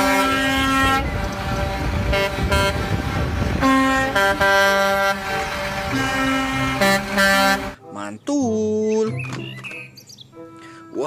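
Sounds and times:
truck air horn blasts: 0.0 - 7.8
truck engine rumble: 0.0 - 7.9.

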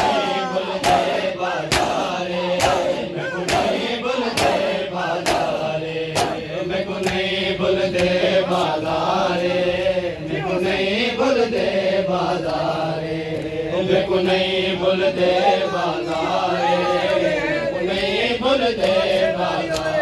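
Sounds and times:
rhythmic chest-beating strikes: 0.0 - 10.0
men chanting together: 0.0 - 20.0.

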